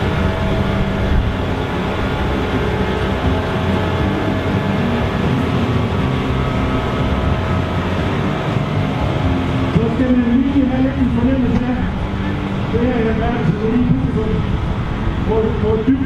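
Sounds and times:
tractor diesel engine idling: 0.0 - 16.0.

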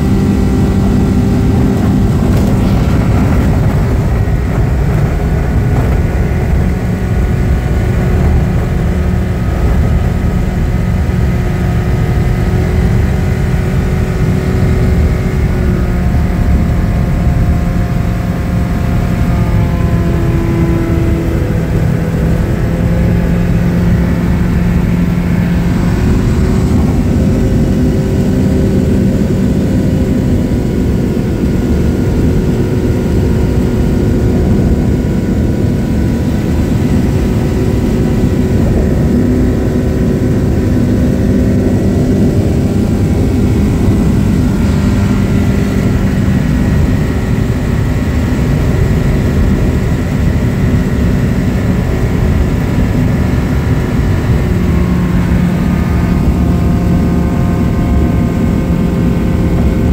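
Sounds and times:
rushing air: 0.0 - 29.6
light aircraft engine and propeller: 0.0 - 59.9.

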